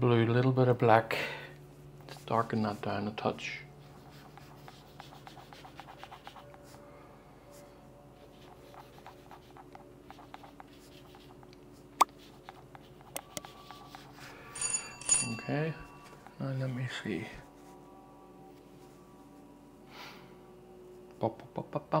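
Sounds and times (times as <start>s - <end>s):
paintbrush brushing strokes: 3.8s - 6.8s, 12.1s - 14.4s, 16.6s - 17.9s.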